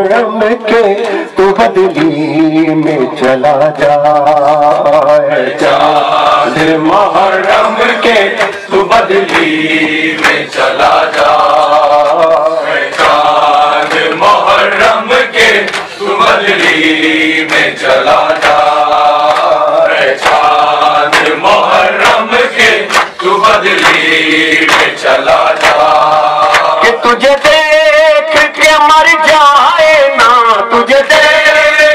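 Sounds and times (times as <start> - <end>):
men singing a lament: 0.0 - 31.9
hands slapping chests: 8.3 - 14.5, 15.6 - 16.8, 17.4 - 26.8.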